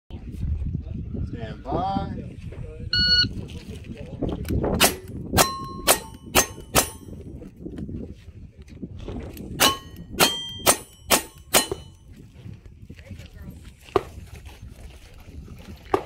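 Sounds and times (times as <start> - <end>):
revolver gunshots: 4.8 - 7.1, 9.6 - 12.0
steel plate ringing: 4.8 - 7.1, 9.6 - 12.0.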